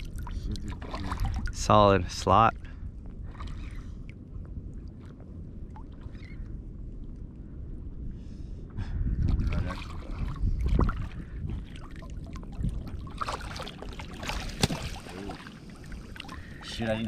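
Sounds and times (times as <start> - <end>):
water sloshing and splashing: 0.0 - 2.2, 3.1 - 7.1, 9.2 - 17.0
low rumble of water movement: 0.0 - 17.0
fish thrashing in water: 9.3 - 16.6
sharp splash: 13.1 - 15.5.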